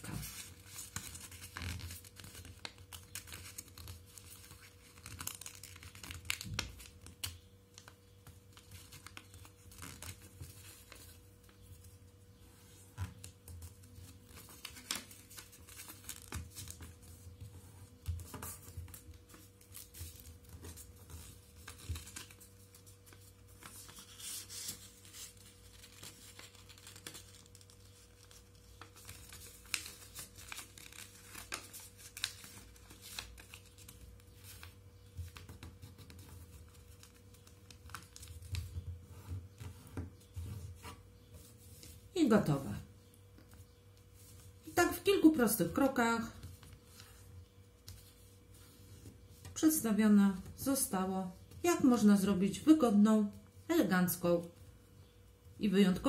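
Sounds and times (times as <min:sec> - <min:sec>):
paper rustling and crinkling: 0:00.0 - 0:12.0, 0:12.7 - 0:42.1.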